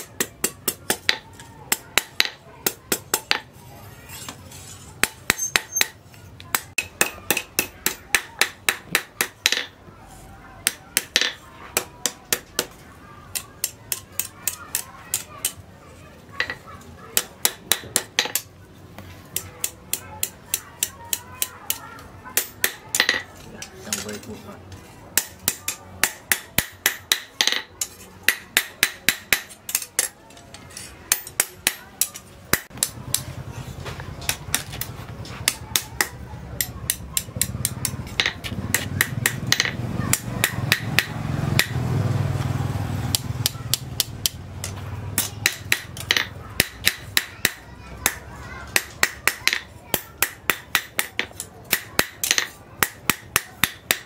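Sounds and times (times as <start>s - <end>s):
hammer striking metal on anvil: 5.0s - 9.7s, 25.2s - 30.2s, 31.1s - 33.3s, 35.4s - 41.8s, 43.1s - 54.0s.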